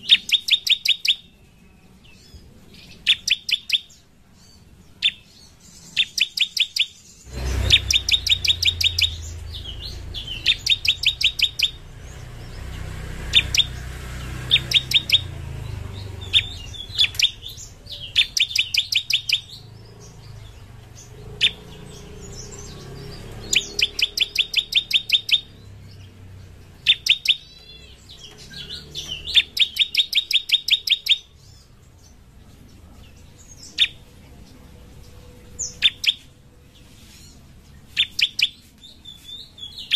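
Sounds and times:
bird singing sharp high notes: 0.0s - 32.2s, 34.9s - 39.9s.

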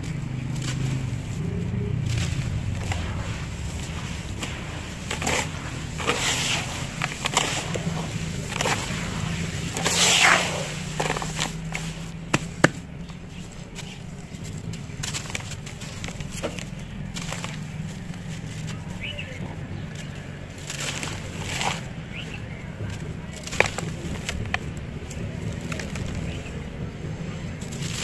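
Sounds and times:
rush of falling grit: 0.0s - 18.8s
gritty crunching and scraping: 0.0s - 28.0s.

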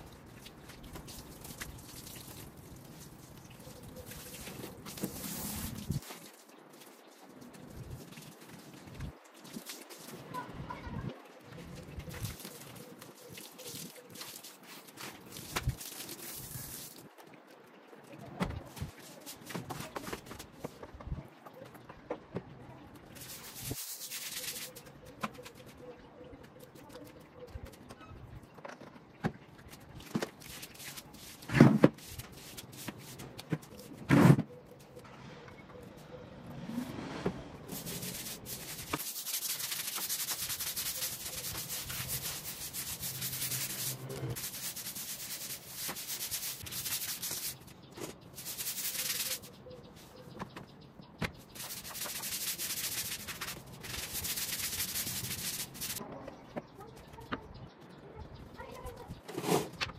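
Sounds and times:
scrubbing on a hard surface: 3.7s - 6.9s, 11.7s - 17.1s, 23.0s - 25.8s, 29.7s - 34.4s, 37.7s - 50.4s, 51.2s - 56.0s.

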